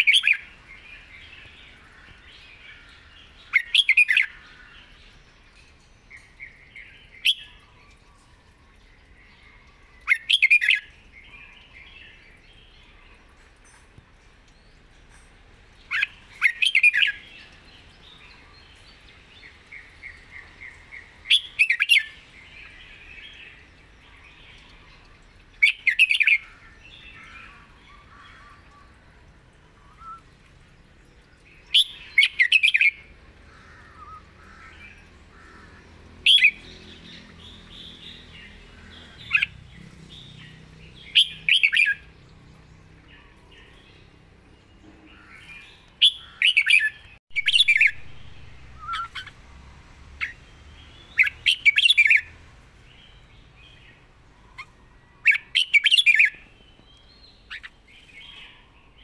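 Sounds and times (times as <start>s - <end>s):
soft bird chirping: 0.0s - 59.0s
bird whistled song phrases: 29.8s - 30.3s, 48.7s - 49.3s.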